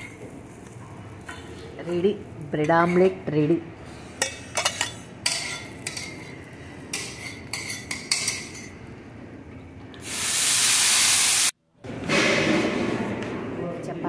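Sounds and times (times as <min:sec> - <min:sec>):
steel plates and utensils clinking: 0:04.2 - 0:08.8
loud steady hiss: 0:10.0 - 0:11.5.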